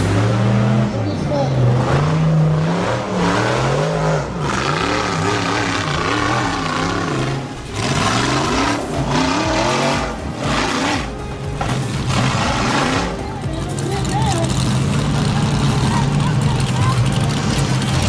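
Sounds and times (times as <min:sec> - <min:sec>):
buggy engine revving hard: 0:00.0 - 0:18.0.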